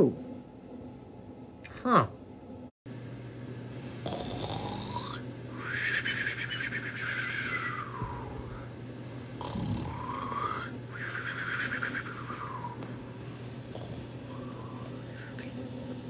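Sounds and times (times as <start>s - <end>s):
person mock snoring: 4.0s - 8.6s, 9.4s - 12.8s, 13.7s - 15.0s.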